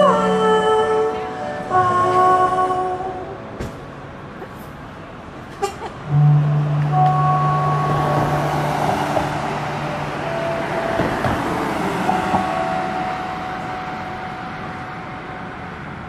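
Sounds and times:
low held note from sound system: 6.1s - 15.6s
faint high held tones: 6.1s - 16.0s.

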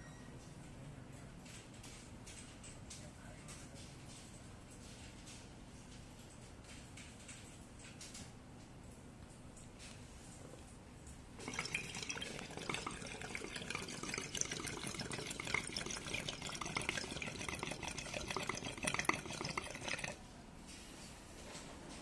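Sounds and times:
water bubbling in glass pipe: 11.4s - 20.2s.

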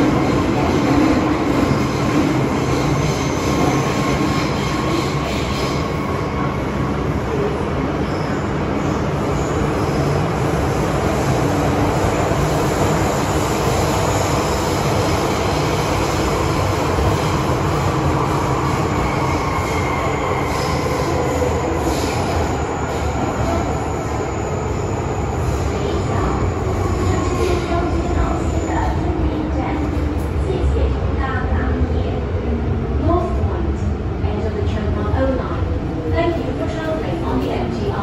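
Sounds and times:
train wheels rumbling on rail: 0.0s - 38.0s.

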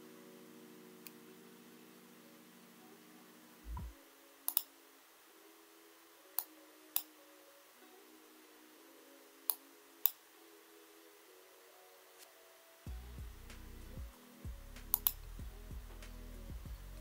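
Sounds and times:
faint background music: 0.0s - 17.0s
computer mouse clicking: 4.5s - 4.7s, 14.8s - 15.2s.

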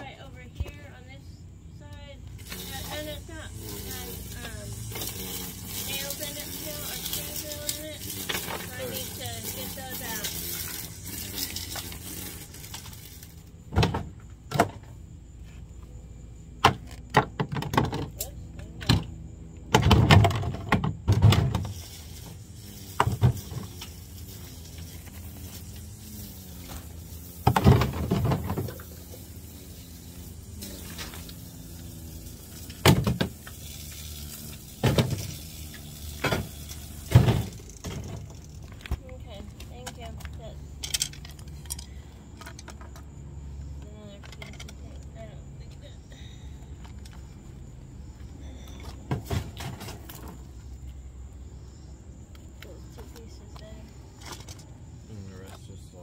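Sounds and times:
plastic toy car knocks and clatter: 16.6s - 19.1s, 19.7s - 21.7s.

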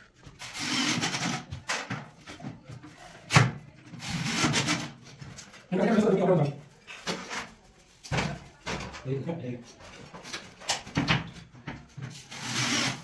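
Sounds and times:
cordless drill driving screws: 0.4s - 1.3s, 12.3s - 13.0s.

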